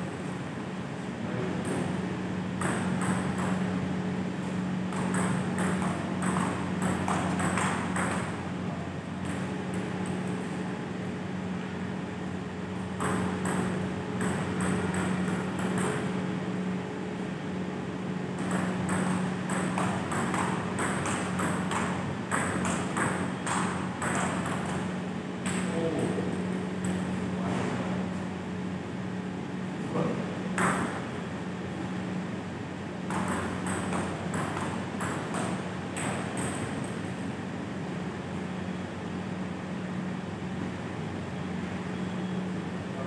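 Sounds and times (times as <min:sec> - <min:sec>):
steady low hum: 0:00.0 - 0:43.0
table tennis ball clicking: 0:04.9 - 0:08.3, 0:13.0 - 0:16.1.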